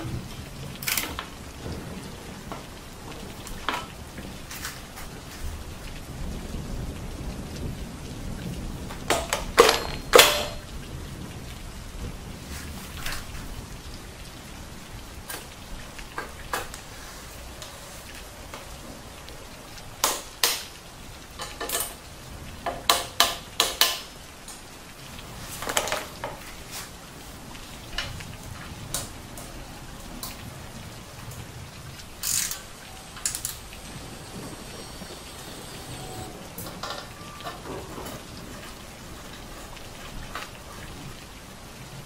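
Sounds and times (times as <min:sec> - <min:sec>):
steady background hiss: 0:00.0 - 0:42.0
metal tools clicking on bicycle parts: 0:00.8 - 0:01.2, 0:09.1 - 0:10.6, 0:32.2 - 0:33.6
ratchet wrench clicking: 0:32.2 - 0:32.6.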